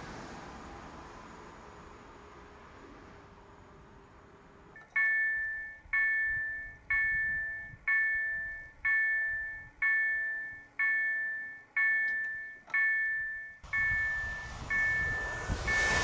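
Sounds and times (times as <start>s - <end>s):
level crossing bell ringing: 4.8s - 16.0s.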